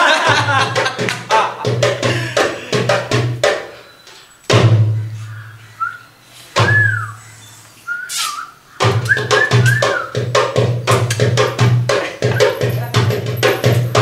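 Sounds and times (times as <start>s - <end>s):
fast drum rhythm: 0.0s - 3.8s, 8.8s - 14.0s
whistled notes: 3.7s - 10.3s, 12.3s - 12.9s
deep drum hits: 8.8s - 14.0s.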